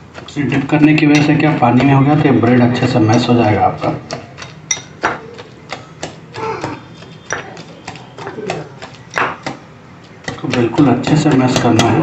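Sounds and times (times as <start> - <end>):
whisk clinking against glass bowl: 1.1 - 5.3.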